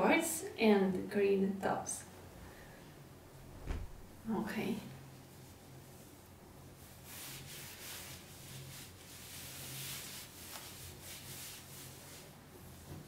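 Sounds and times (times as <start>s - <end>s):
low steady hum: 0.0s - 6.6s
clothing rustling: 3.3s - 4.3s.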